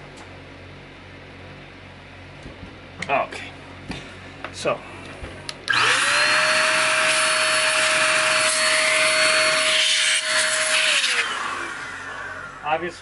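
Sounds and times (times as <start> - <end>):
air duster motor whine: 3.9 - 13.0.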